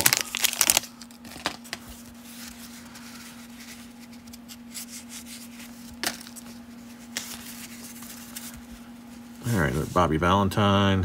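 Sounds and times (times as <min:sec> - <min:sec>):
cardboard cards shuffling: 0:00.0 - 0:10.1
steady low hum: 0:00.0 - 0:11.0.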